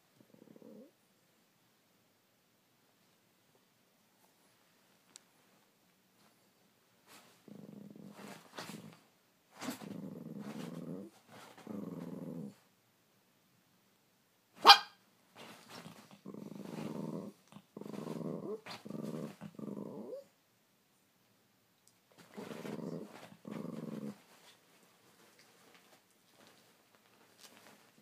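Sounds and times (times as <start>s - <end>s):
small dog growling: 0.2s - 1.0s, 7.4s - 9.0s, 9.6s - 12.6s, 15.5s - 20.3s, 22.2s - 24.4s
dog yapping sharply: 14.6s - 15.0s.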